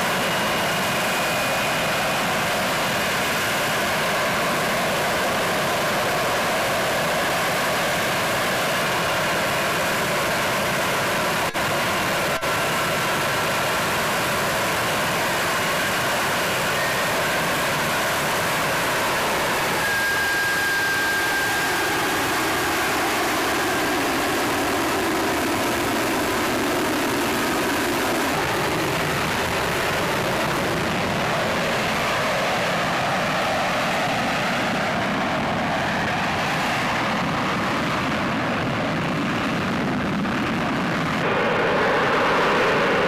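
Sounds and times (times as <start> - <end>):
faint high whine: 0.0 - 43.0
jet engine roaring: 0.0 - 43.0.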